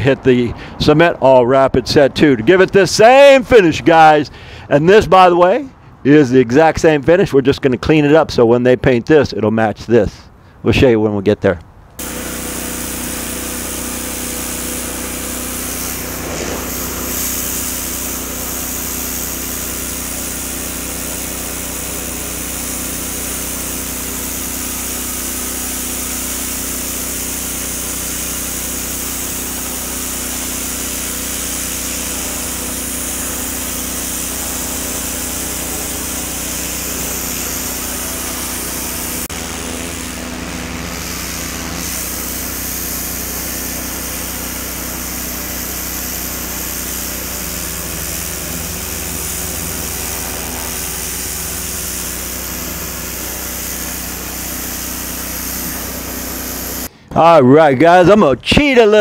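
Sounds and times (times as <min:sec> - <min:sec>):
pressure washer spray hissing: 0:12.0 - 0:56.9
small engine running: 0:12.0 - 0:56.9.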